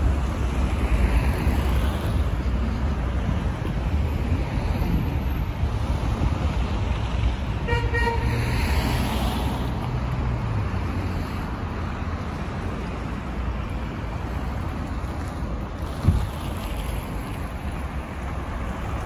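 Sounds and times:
street traffic rumble: 0:00.0 - 0:19.0
car horn toots: 0:07.6 - 0:08.4.

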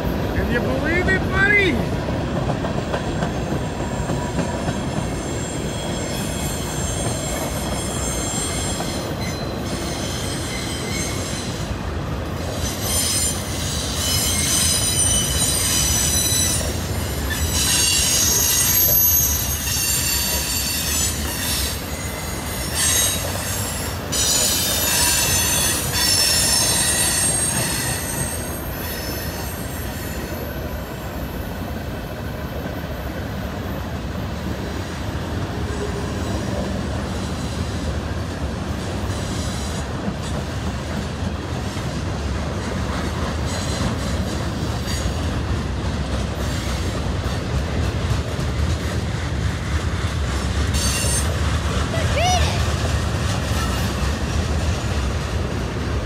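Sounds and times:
freight train rumbling on rails: 0:00.0 - 0:56.0
high-pitched wheel squeal: 0:05.1 - 0:11.6, 0:12.5 - 0:30.4.

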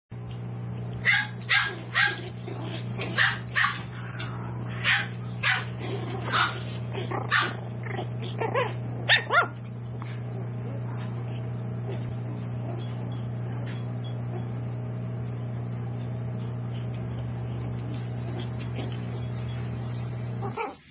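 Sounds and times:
steady low hum: 0:00.1 - 0:20.9
puppies yipping and barking: 0:01.0 - 0:09.8, 0:16.7 - 0:20.9.

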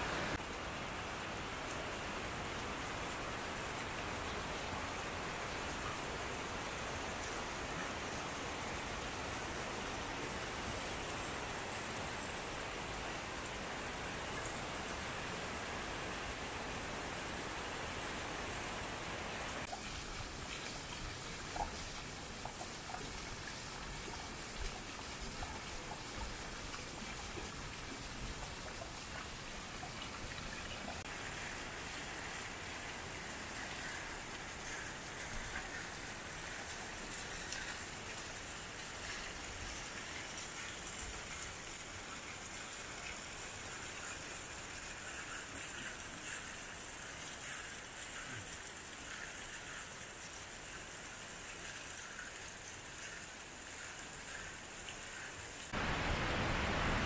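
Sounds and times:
waterfall hiss: 0:00.0 - 0:57.0.

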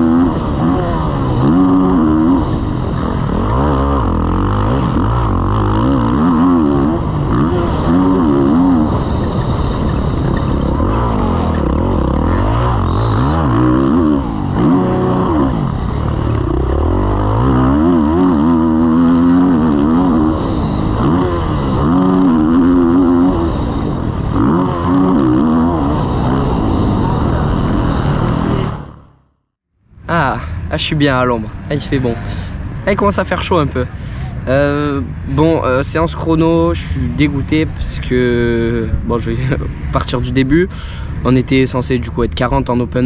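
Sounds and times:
motocross bike engine revving: 0:00.0 - 0:29.2.

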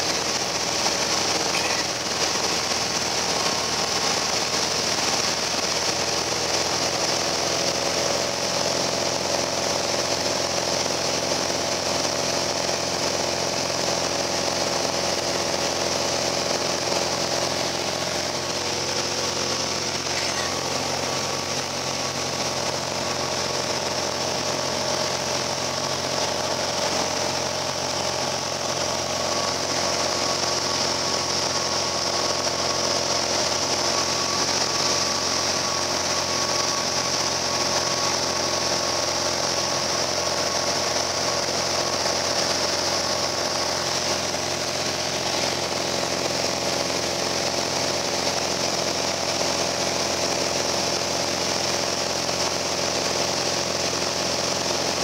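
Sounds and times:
light aircraft engine drone: 0:00.0 - 0:55.0.

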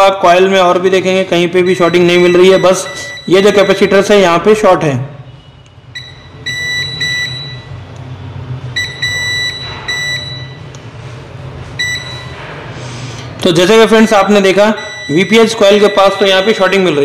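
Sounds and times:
multimeter high-pitched beeps: 0:01.6 - 0:04.3, 0:05.3 - 0:07.8, 0:08.7 - 0:10.7, 0:11.8 - 0:12.4, 0:14.6 - 0:17.0.

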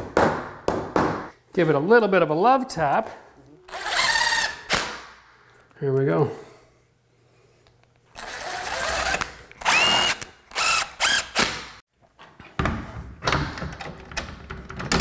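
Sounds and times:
cordless drill driving screws: 0:03.7 - 0:04.7, 0:08.2 - 0:11.7.

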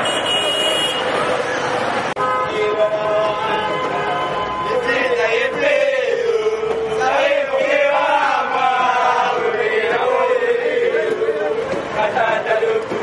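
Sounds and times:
crowd chanting a song: 0:02.4 - 0:13.0.

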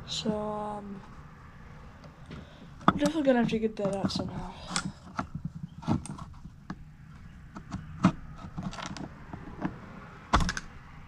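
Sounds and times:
carburetor parts clicking and knocking: 0:02.0 - 0:10.8.

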